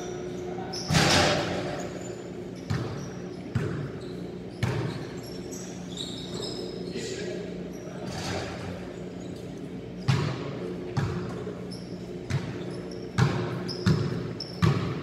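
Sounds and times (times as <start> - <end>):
basketballs bouncing on hard floor: 2.6 - 5.2, 10.0 - 11.5, 12.3 - 15.0.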